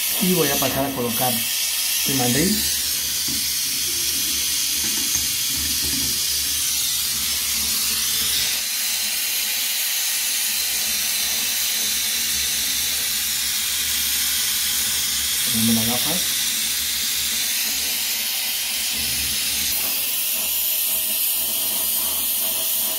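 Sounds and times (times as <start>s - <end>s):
welding torch hissing: 0.0s - 22.9s.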